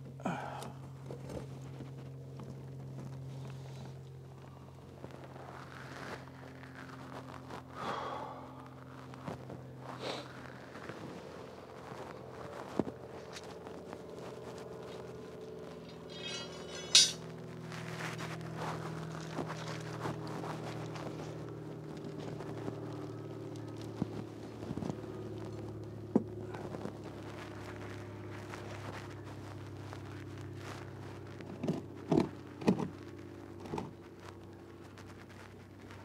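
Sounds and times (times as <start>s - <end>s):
low mechanical hum: 0.0s - 36.0s
knocks and scrapes: 15.8s - 17.3s
thumps: 15.9s - 17.2s.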